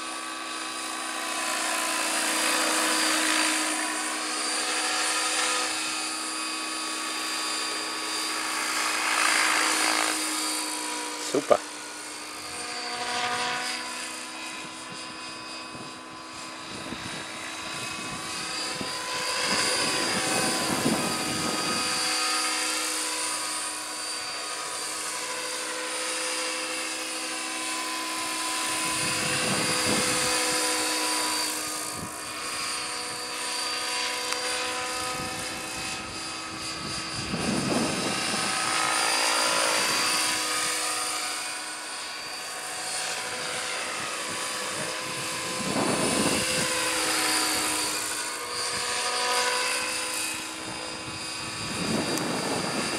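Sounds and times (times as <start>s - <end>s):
model helicopter rotor whine: 0.0s - 52.9s.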